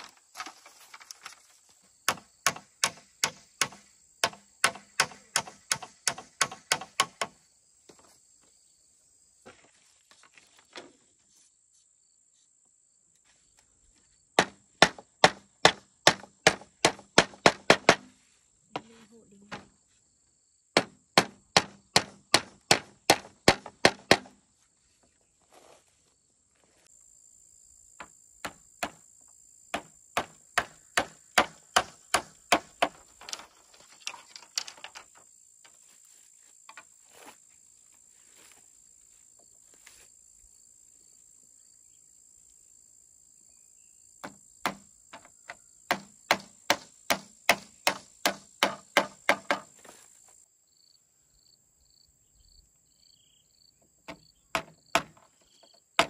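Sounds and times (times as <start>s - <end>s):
high insect drone: 26.1s - 56.0s.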